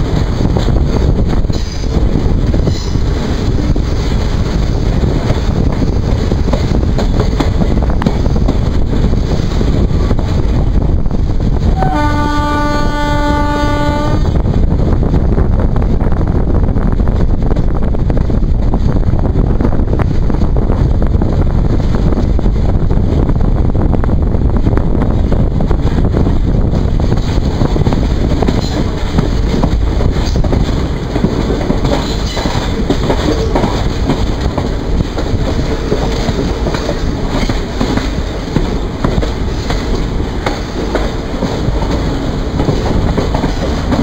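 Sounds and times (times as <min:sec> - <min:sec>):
train rumbling on rails: 0:00.0 - 0:44.0
wind on microphone: 0:00.0 - 0:44.0
locomotive air horn blast: 0:11.7 - 0:14.3.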